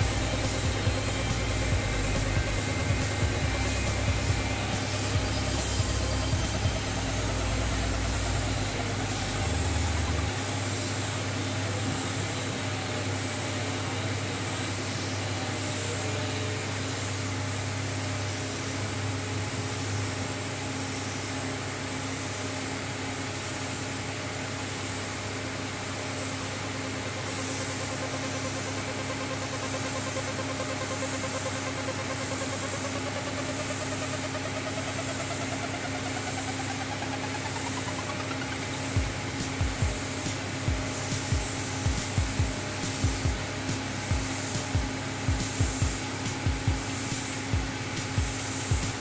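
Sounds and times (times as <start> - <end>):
low machine hum: 0.0 - 11.9, 27.0 - 49.0
spray gun hiss: 0.0 - 49.0.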